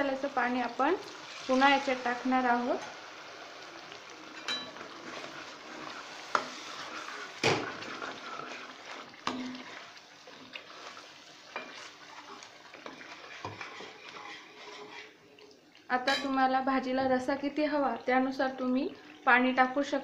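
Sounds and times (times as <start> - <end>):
oil sizzling: 0.0 - 20.0
ladle scraping metal pan: 4.4 - 15.2.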